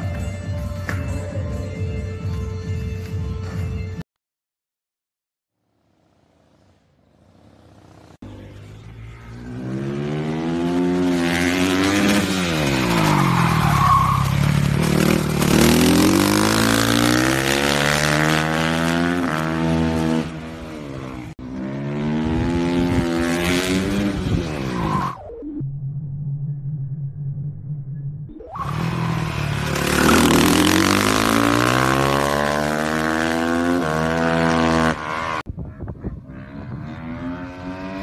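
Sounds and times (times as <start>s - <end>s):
racing motorcycle engine: 5.8s - 25.2s, 28.6s - 38.0s.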